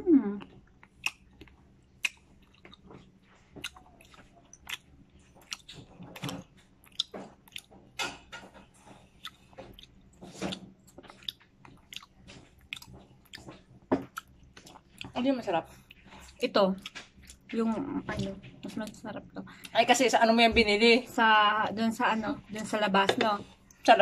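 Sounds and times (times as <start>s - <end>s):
person chewing grapes: 0.3s - 19.8s
wet mouth clicks: 0.4s - 2.8s.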